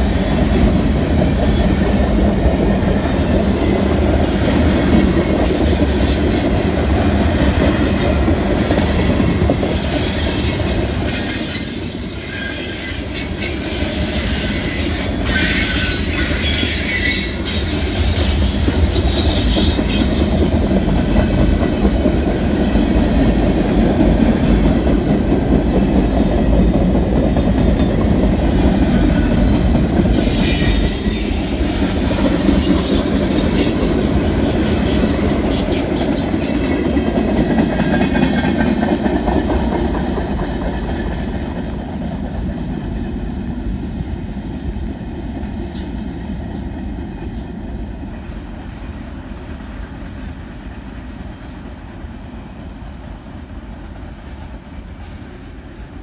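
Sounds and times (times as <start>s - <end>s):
train wheels rumbling on rails: 0.0s - 56.0s
high wheel squeal: 10.0s - 20.4s, 30.1s - 33.8s.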